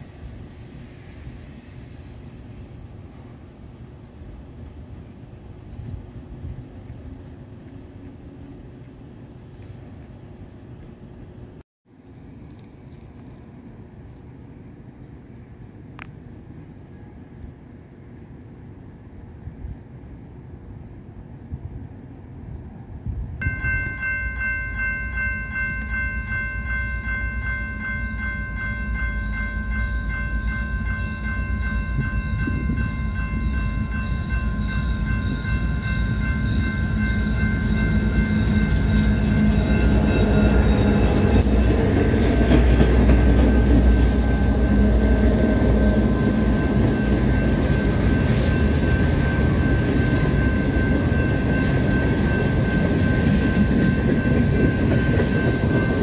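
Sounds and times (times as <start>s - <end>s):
freight train rumbling past: 0.0s - 11.6s, 13.4s - 56.0s
railroad crossing bells ringing: 23.4s - 56.0s.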